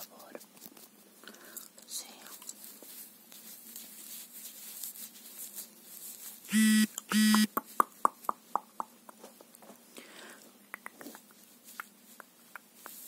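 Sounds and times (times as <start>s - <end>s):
toy clipper buzzing: 6.5s - 7.5s.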